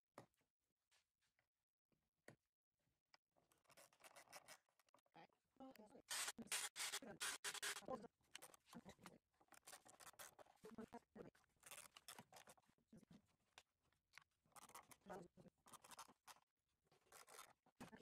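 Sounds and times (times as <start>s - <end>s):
screwdriver turning screws: 6.0s - 8.6s, 11.6s - 12.5s, 17.0s - 17.5s.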